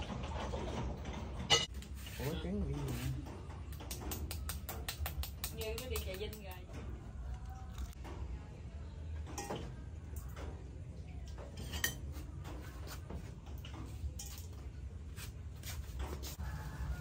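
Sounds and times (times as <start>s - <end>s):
spoons and bowls clinking on metal: 11.5s - 12.2s, 14.1s - 14.6s.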